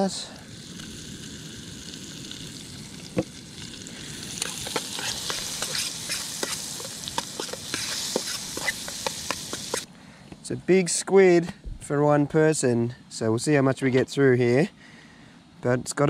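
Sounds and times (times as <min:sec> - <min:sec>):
chili sizzling in butter: 0:00.0 - 0:09.9
metal fork scraping a pan: 0:04.4 - 0:09.9.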